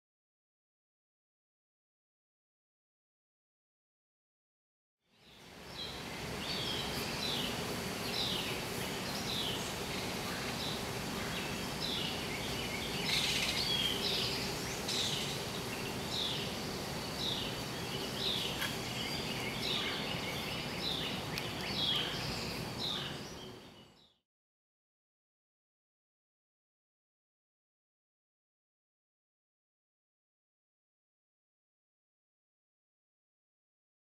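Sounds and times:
outdoor background hiss: 5.1s - 24.2s
songbird call notes: 5.1s - 24.2s.

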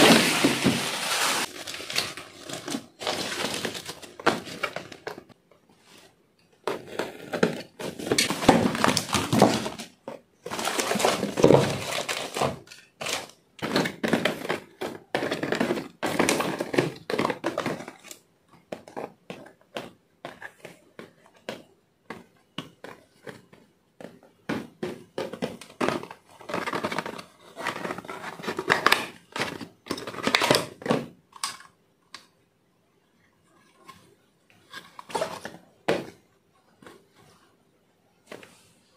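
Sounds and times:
cardboard boxes scraping: 0.0s - 4.1s
packaging rustling and crinkling: 0.0s - 6.1s, 6.7s - 18.2s.

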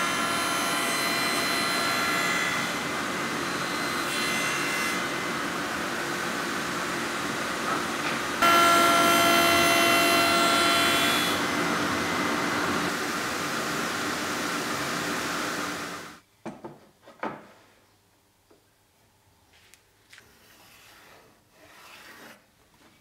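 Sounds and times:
saw blade whine cutting wood: 0.0s - 16.2s
table saw running: 0.0s - 16.2s.

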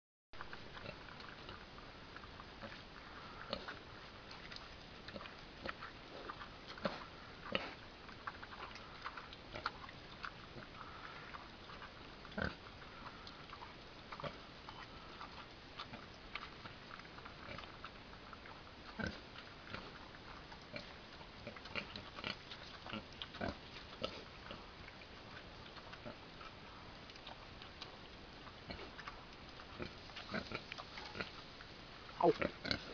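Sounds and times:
pig crunching and chewing: 0.4s - 32.9s.

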